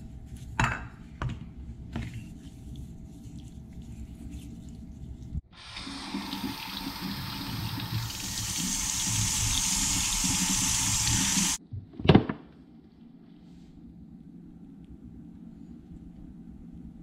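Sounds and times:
faucet running into sink: 5.6s - 11.6s.

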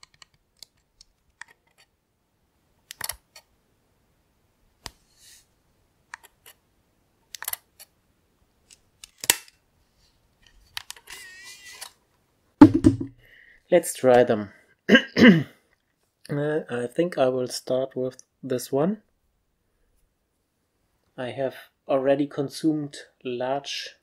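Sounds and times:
soft rustle: 9.7s - 12.0s.

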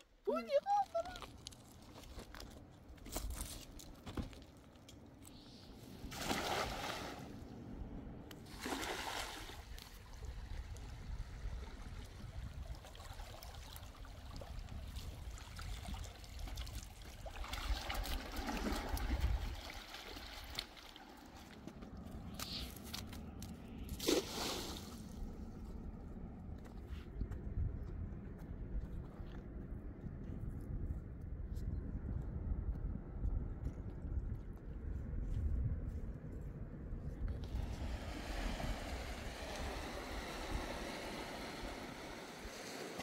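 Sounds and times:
water splashing and sloshing: 0.4s - 25.8s, 37.3s - 43.0s
steady low rumble: 1.2s - 8.6s, 24.8s - 43.0s.

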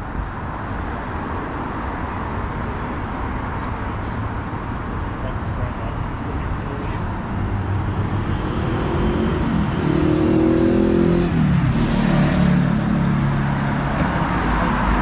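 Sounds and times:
street traffic hum: 0.0s - 15.0s
vehicle engine accelerating: 7.3s - 15.0s.

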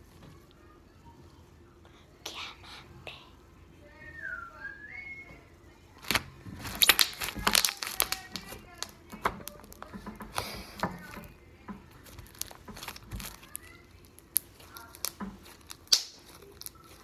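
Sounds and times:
slime kneaded by hand: 6.0s - 17.0s.

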